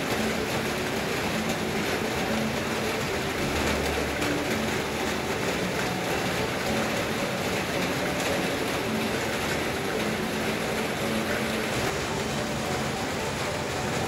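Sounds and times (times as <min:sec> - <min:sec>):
heavy rain: 0:00.0 - 0:14.0.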